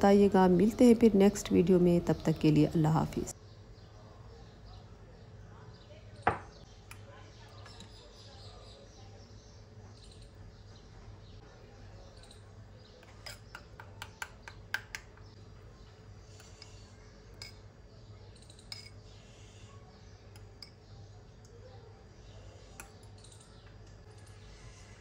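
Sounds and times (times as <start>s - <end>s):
spoon clinking against glass bowl: 13.0s - 15.2s, 16.4s - 17.7s, 18.6s - 19.0s, 20.3s - 20.9s.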